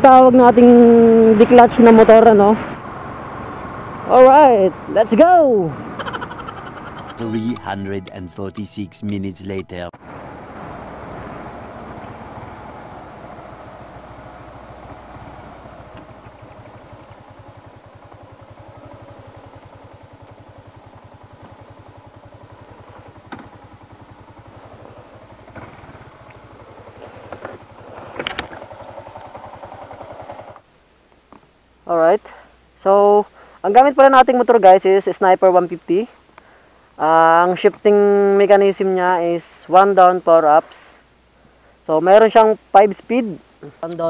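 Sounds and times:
motorcycle engine running: 0.0s - 7.8s, 10.0s - 30.7s.

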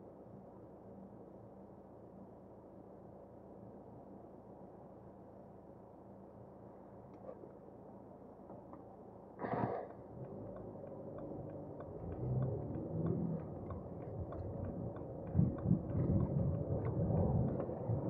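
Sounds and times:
car engine and road rumble: 9.7s - 18.0s
faint even ticking: 10.2s - 18.0s.

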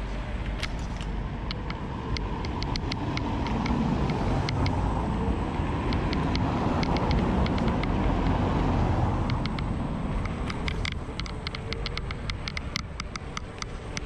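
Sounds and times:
wind rush on microphone: 0.0s - 14.0s
light ticks: 0.4s - 4.8s, 5.9s - 8.5s, 9.2s - 14.0s.

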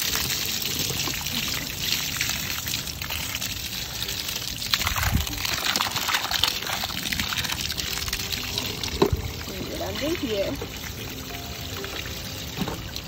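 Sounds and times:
hose water splashing on metal: 0.0s - 13.0s
water pouring onto muddy ground: 0.0s - 13.0s.

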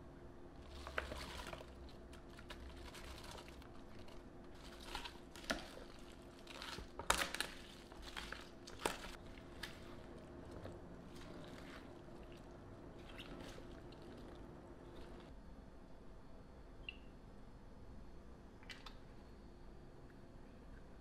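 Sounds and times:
vegetables rustling and crunching: 0.6s - 15.3s.

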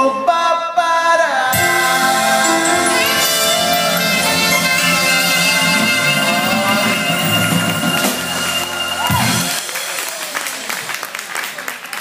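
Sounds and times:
drums: 1.5s - 11.6s
electric bass: 1.6s - 9.6s
horn section holding long notes: 1.6s - 9.8s.

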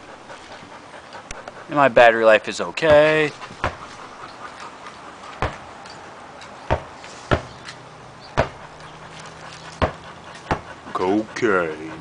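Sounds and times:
basketball bouncing on asphalt: 2.8s - 3.9s, 5.4s - 5.7s, 6.7s - 8.7s, 9.7s - 10.7s.

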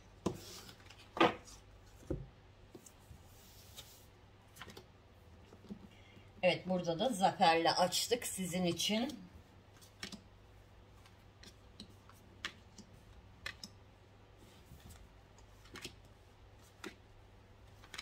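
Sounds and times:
faint steady hum: 0.0s - 18.0s
cards clicking on tabletop: 11.4s - 13.8s.

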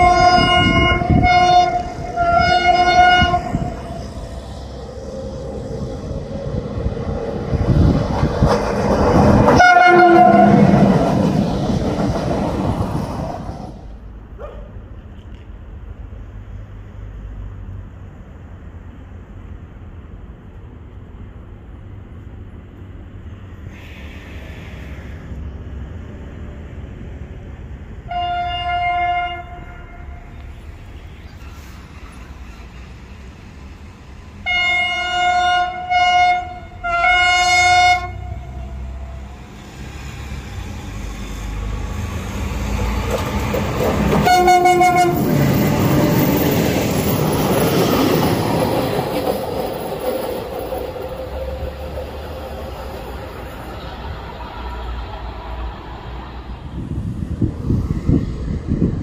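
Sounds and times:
train horn blasts: 0.0s - 4.1s, 9.5s - 10.9s, 28.1s - 30.4s, 34.4s - 39.2s, 44.1s - 45.3s
train rumbling on rails: 0.0s - 59.0s.

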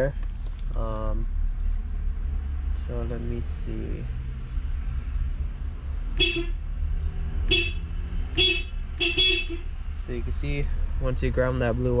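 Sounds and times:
car horn honks: 6.2s - 6.6s, 7.5s - 9.7s.

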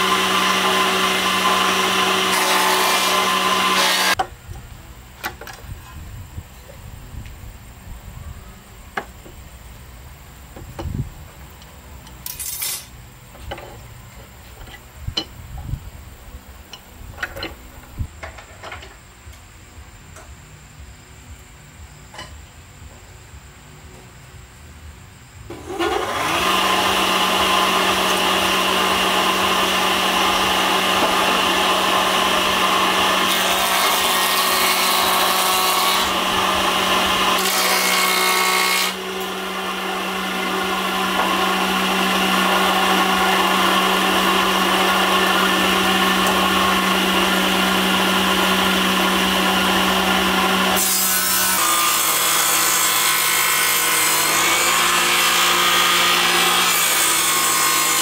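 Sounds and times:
electric power tool cutting wood: 0.0s - 4.2s, 25.5s - 58.0s.

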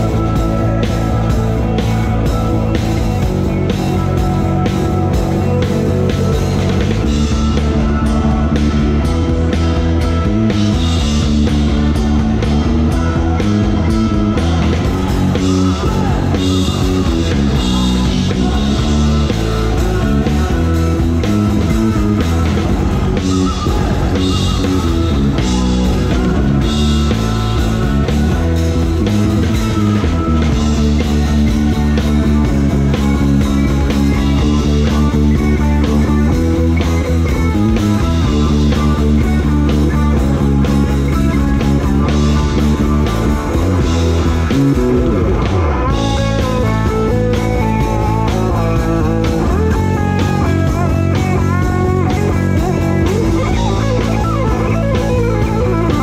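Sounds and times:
drum kit: 0.0s - 56.0s
electric guitar: 0.0s - 56.0s
live rock band playing: 0.0s - 56.0s.

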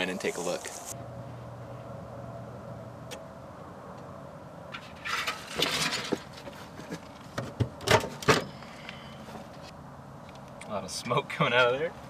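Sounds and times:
rustling and scraping: 4.7s - 9.7s.

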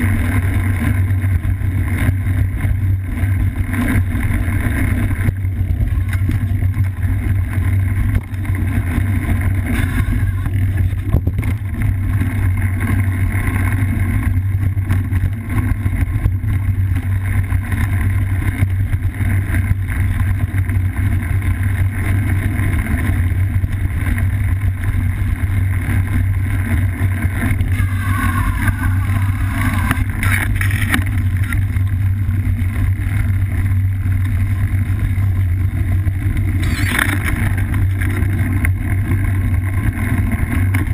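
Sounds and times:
low rumble of trail vibration: 0.0s - 40.9s
gliding warbling sounds: 9.7s - 11.0s, 27.6s - 31.8s
wind rushing past camera: 21.6s - 40.9s.

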